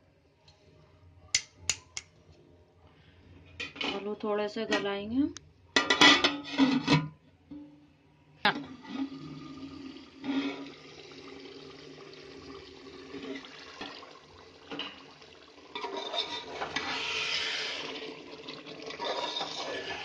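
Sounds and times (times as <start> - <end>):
gravy bubbling in a pot: 8.8 - 20.0
wooden spoon stirring sloshing: 19.0 - 20.0.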